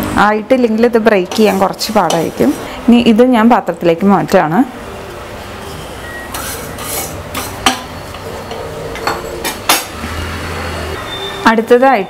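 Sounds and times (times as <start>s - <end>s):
utensil scraping a metal pan: 5.6s - 9.9s.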